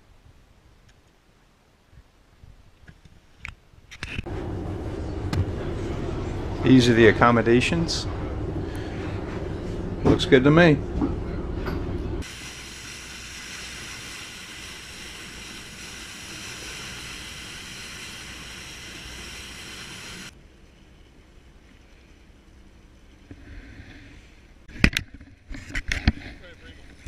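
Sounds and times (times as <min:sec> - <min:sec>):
wind and bow spray on hull: 0:12.2 - 0:20.3.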